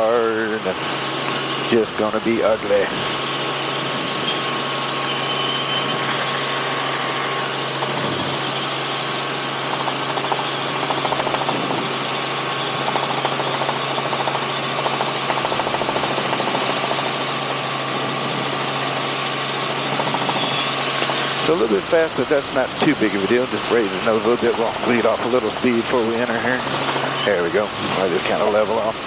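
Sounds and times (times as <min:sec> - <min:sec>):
helicopter engine and rotor drone: 0:00.0 - 0:29.0
wind noise: 0:07.8 - 0:08.5.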